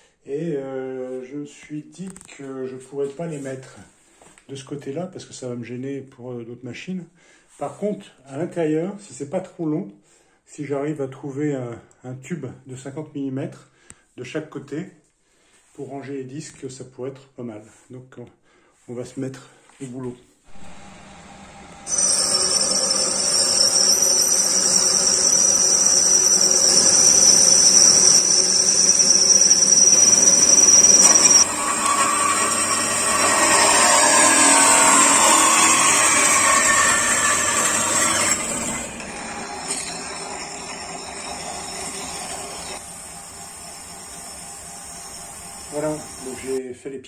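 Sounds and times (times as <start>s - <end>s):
abrasive pad on spinning part: 20.5s - 46.6s
bandsaw cutting metal tube: 20.5s - 46.6s
metal lathe whining: 20.5s - 46.6s.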